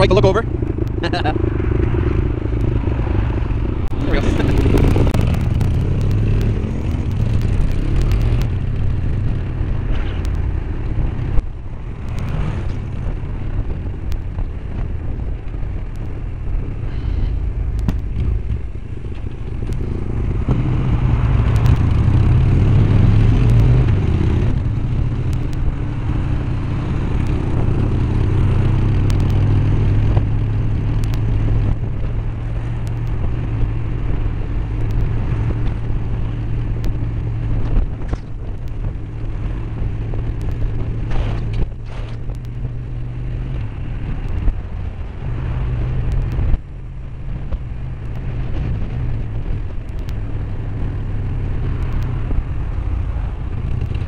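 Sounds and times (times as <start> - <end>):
motorcycle engine droning: 0.0 - 54.0
wind rushing over microphone: 0.0 - 54.0.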